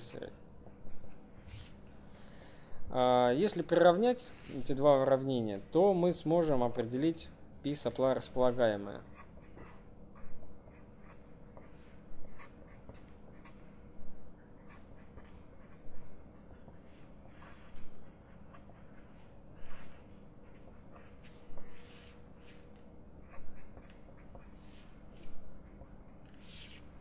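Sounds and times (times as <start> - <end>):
faint steady hum: 0.0 - 27.0
pen writing on paper: 17.3 - 22.1.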